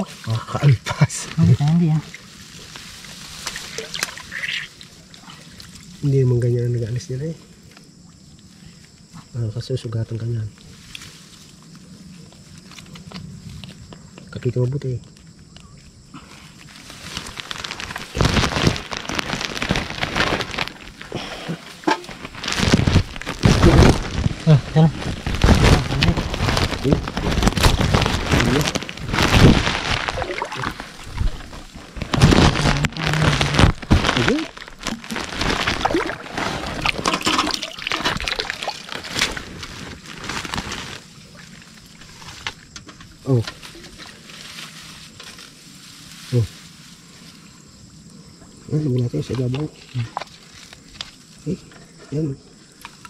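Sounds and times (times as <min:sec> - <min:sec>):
dry grass rustling and crackling: 0:00.0 - 0:06.0, 0:10.6 - 0:13.9, 0:15.1 - 0:47.8, 0:49.7 - 0:51.5
muddy water sloshing and splashing: 0:02.0 - 0:06.1, 0:25.0 - 0:42.4.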